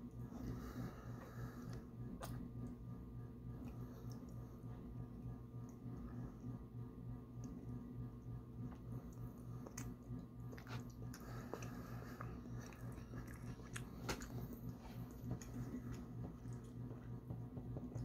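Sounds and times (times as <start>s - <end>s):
steady low hum: 0.0s - 18.0s
mouth chewing: 8.7s - 17.1s.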